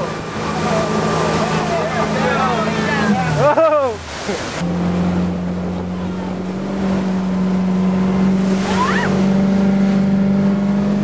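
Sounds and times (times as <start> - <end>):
speedboat engine running: 0.0 - 11.0
water rushing: 0.0 - 11.0
person yelling: 8.7 - 9.1.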